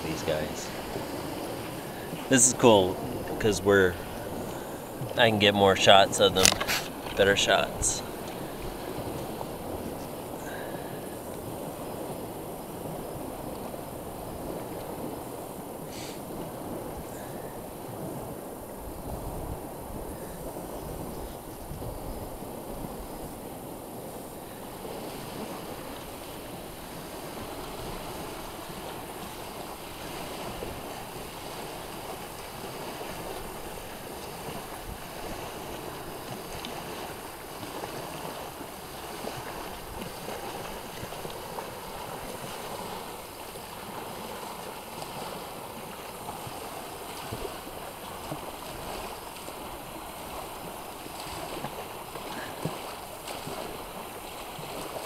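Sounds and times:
small waves washing on shore: 0.0 - 55.0
wind on microphone: 0.0 - 55.0.

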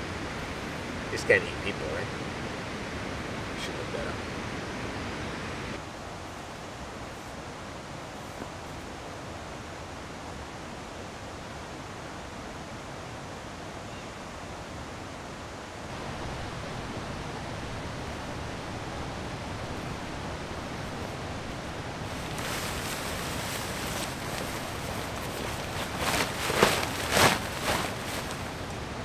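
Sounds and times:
steady rushing outdoor noise: 0.0 - 29.0
loud rustles: 19.6 - 28.8.

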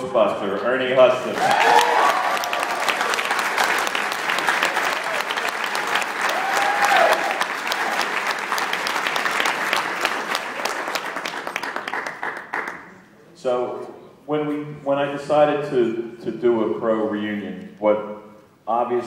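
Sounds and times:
audience applauding: 1.3 - 12.9.

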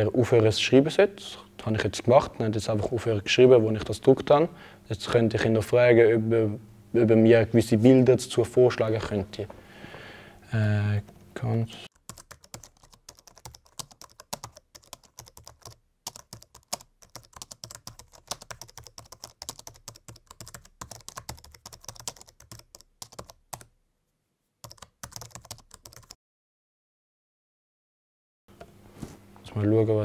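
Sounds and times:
laptop keyboard typing: 11.9 - 23.7, 24.6 - 26.2.

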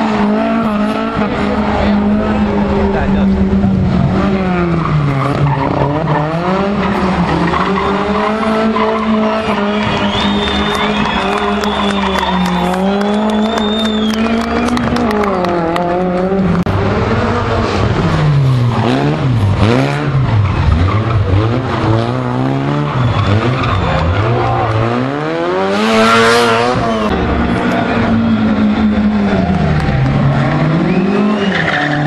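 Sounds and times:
rally car engines revving: 0.0 - 32.0
tyres skidding: 0.0 - 32.0
high tyre squeal: 4.0 - 15.5, 17.6 - 32.0.

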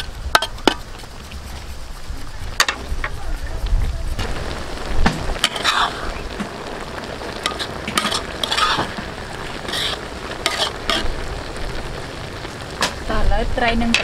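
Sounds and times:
metal ladle scraping a wok: 0.0 - 3.2, 5.3 - 6.6, 7.2 - 11.2
broth simmering and bubbling: 0.0 - 14.0.

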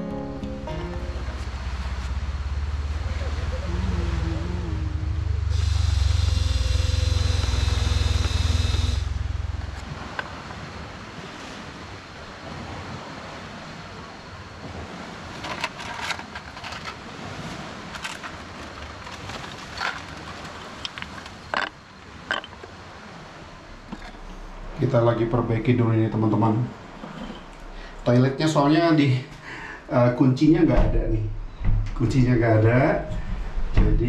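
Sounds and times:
motor drone with low rumble: 1.1 - 10.5, 23.4 - 29.0, 29.8 - 34.0
sharp clicks and knocks: 30.8 - 32.2.

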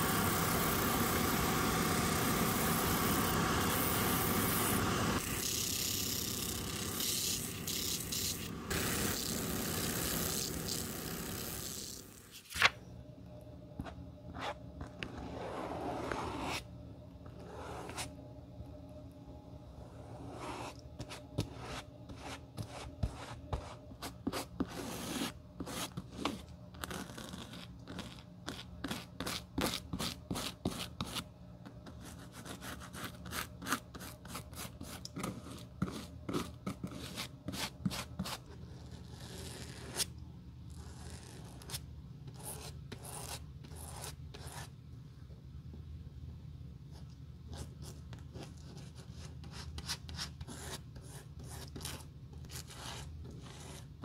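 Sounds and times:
stiff brush scratching strokes: 14.3 - 16.7, 20.0 - 29.4.

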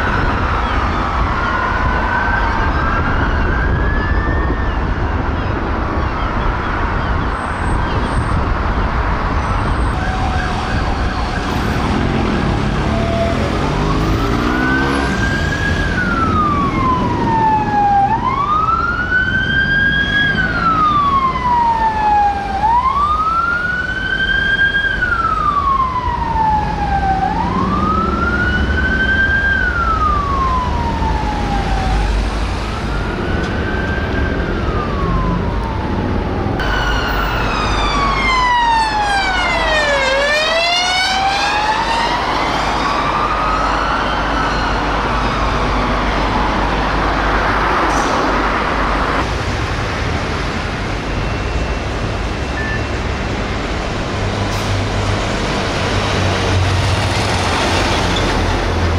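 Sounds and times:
police siren slow wail: 0.0 - 7.8, 9.3 - 49.3
ambulance siren: 0.0 - 49.3
fire engine siren: 0.0 - 58.9
engine revving: 11.5 - 18.3, 26.9 - 29.2.

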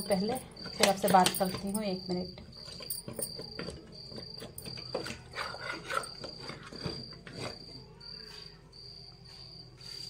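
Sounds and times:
cricket trilling: 0.0 - 10.0
spoon scraping on plate: 4.7 - 7.7.

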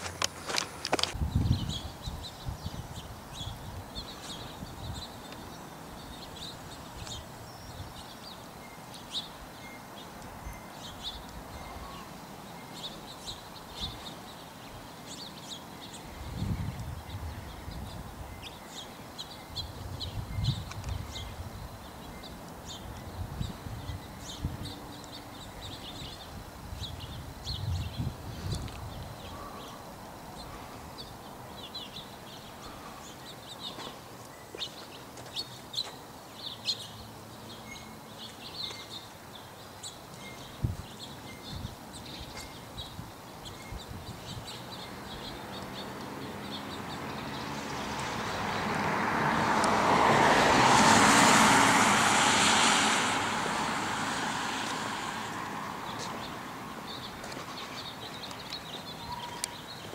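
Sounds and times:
small birds chirping: 0.0 - 50.2, 52.6 - 59.9
vehicle passing: 44.8 - 58.1.

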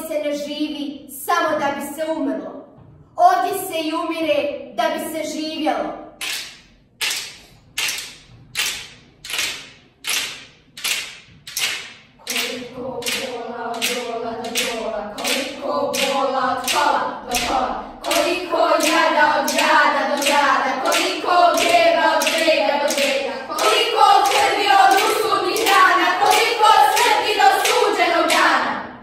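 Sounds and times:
children clapping a beat: 6.2 - 28.8
children singing together: 12.2 - 29.0.

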